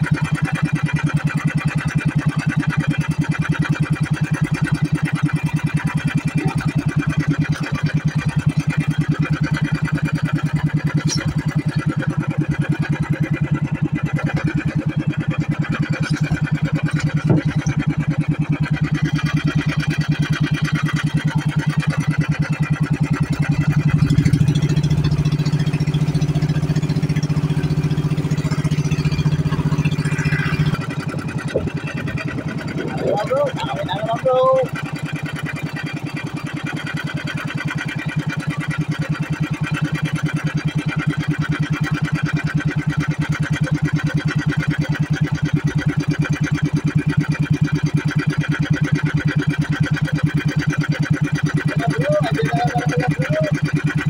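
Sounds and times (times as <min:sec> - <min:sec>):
boat engine running: 0:00.0 - 0:54.0.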